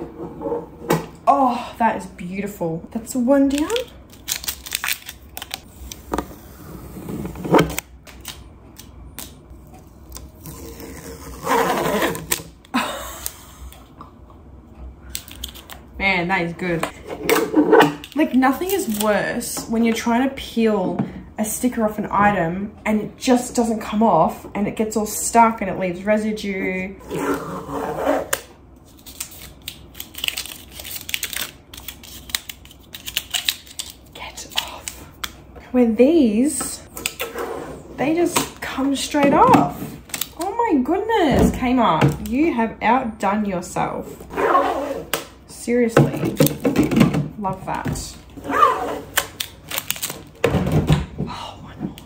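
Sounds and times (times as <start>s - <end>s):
label crinkling and tearing: 3.4s - 6.0s, 15.1s - 15.8s, 18.0s - 19.2s, 28.8s - 35.4s, 49.1s - 50.4s.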